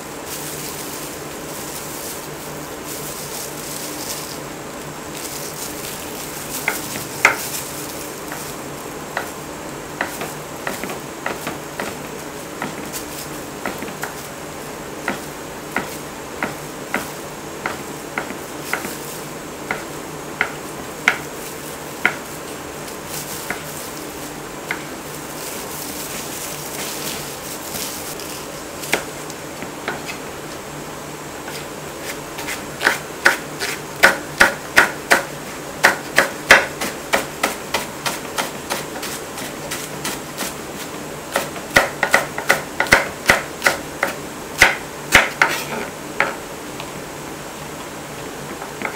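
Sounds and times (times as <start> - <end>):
knife chopping on wooden board: 6.6 - 7.5, 10.0 - 13.0, 13.6 - 14.2, 15.0 - 19.0, 19.7 - 21.3, 22.0 - 22.3, 23.4 - 23.7, 24.7 - 24.9, 31.5 - 40.5, 41.3 - 46.4.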